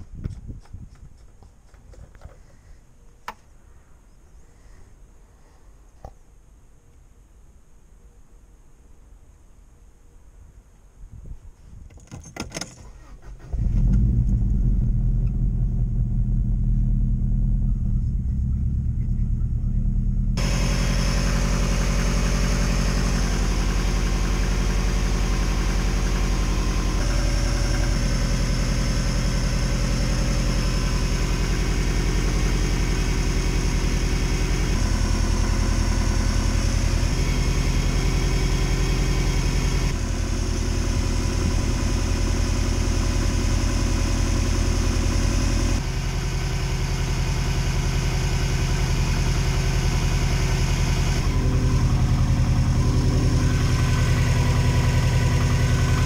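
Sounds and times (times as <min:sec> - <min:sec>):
car engine idling: 0:13.0 - 0:56.0.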